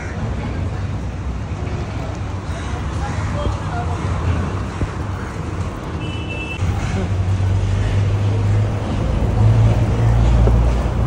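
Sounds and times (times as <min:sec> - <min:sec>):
vehicle engine rumble: 0:00.0 - 0:11.0.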